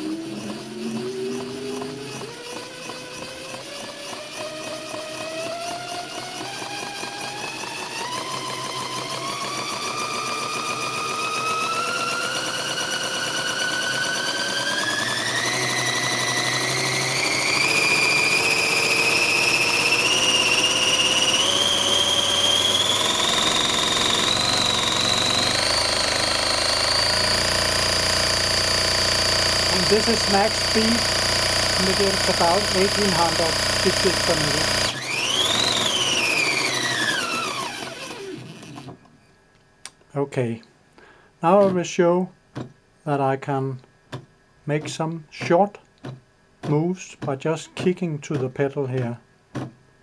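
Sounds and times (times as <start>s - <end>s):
sewing machine running: 0.0s - 39.0s
rising motor whine: 0.0s - 39.1s.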